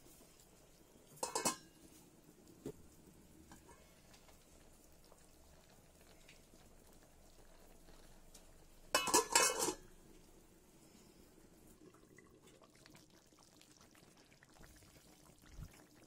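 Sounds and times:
metal lid clinking on pot: 1.2 - 1.7, 8.9 - 9.8.

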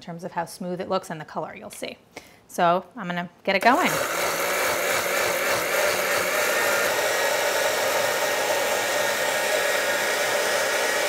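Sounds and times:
blender whirring: 3.6 - 11.0.

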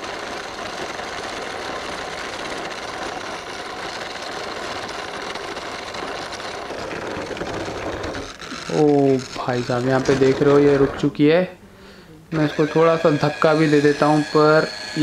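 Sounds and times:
toy truck motor whirring: 0.0 - 11.1, 12.3 - 15.0
wheels over dirt and stones: 0.0 - 11.1.

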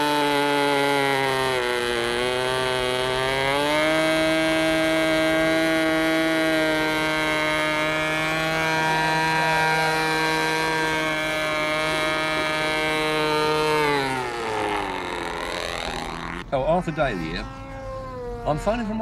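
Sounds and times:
model aeroplane engine buzzing: 0.0 - 19.0.

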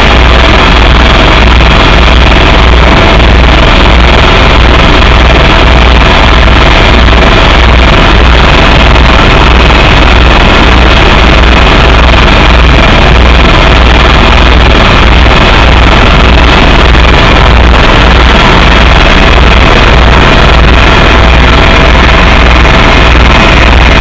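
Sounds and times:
helicopter rotor and engine drone: 0.0 - 24.0.

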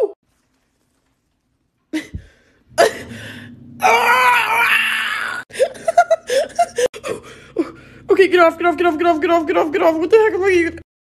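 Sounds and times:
woman screaming in pain: 3.8 - 5.5.

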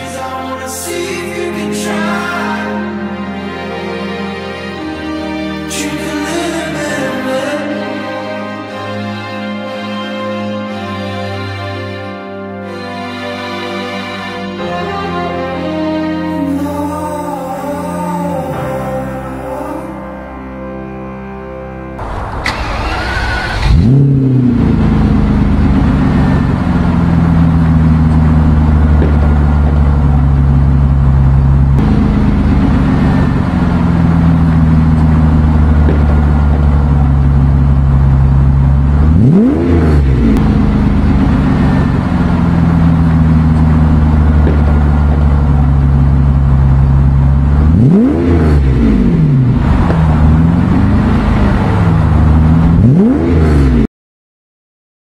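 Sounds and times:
car engine idling and revving: 22.0 - 53.9.

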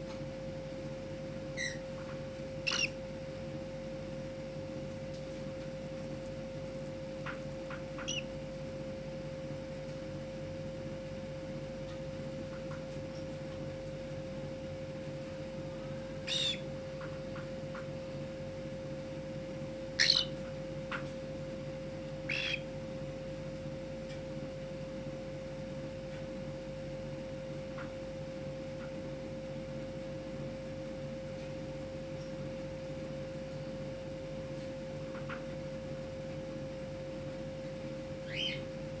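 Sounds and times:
cockatiel chirps: 1.6 - 1.8, 2.7 - 2.9, 20.0 - 20.3, 22.3 - 22.6, 38.3 - 38.6.

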